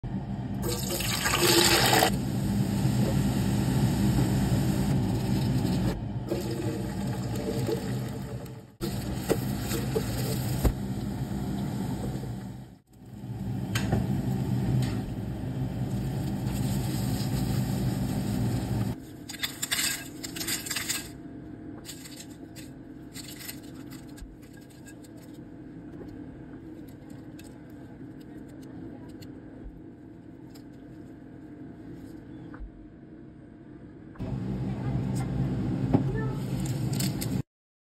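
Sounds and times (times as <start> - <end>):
low hum: 0.0 - 37.4
vegetables sizzling in oil: 15.8 - 19.0.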